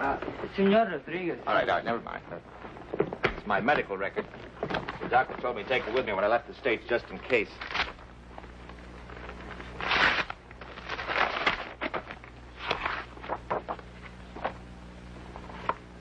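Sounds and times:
steady low hum: 0:00.0 - 0:16.0
paper rustling: 0:02.7 - 0:06.4, 0:07.1 - 0:14.6.

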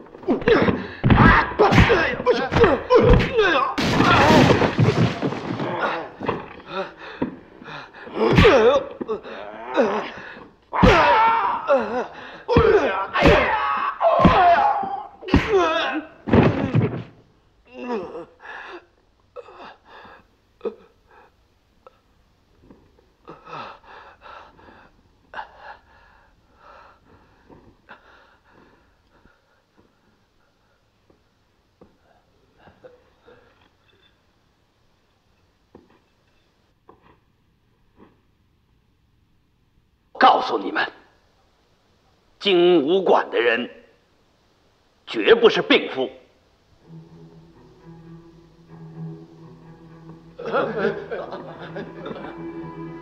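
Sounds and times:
fighters shouting and crying: 0:00.3 - 0:07.0, 0:08.0 - 0:16.2
crash of body being thrown: 0:01.0 - 0:06.4
man groaning in pain: 0:08.1 - 0:10.2, 0:10.8 - 0:16.1
loud wavering yell: 0:10.8 - 0:11.9, 0:12.5 - 0:16.1.

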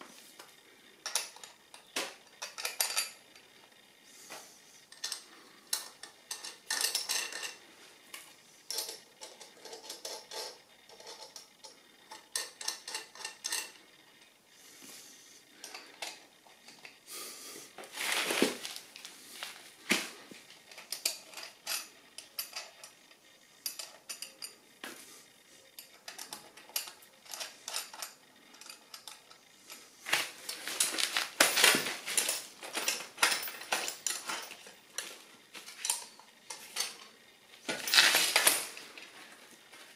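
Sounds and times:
metal bolts and nuts clinking: 0:01.0 - 0:03.4, 0:04.9 - 0:07.7, 0:08.7 - 0:13.9, 0:20.6 - 0:24.6, 0:25.8 - 0:39.9.

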